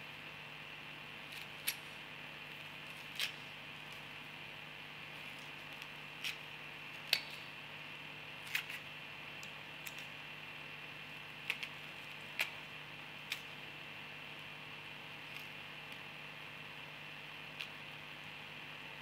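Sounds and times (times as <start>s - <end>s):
faint steady hiss and hum: 0.0s - 19.0s
onion skin crackling and tearing: 2.5s - 4.1s, 11.4s - 12.6s.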